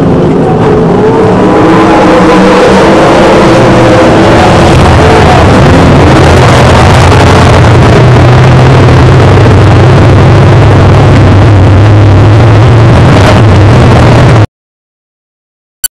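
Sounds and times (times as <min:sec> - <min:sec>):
race car engine idling: 0:04.0 - 0:14.4.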